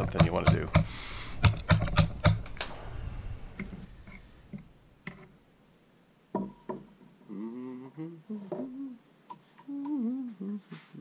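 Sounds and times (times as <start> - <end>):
sharp metal taps and clicks: 0.0 - 2.7
man humming: 7.2 - 11.0.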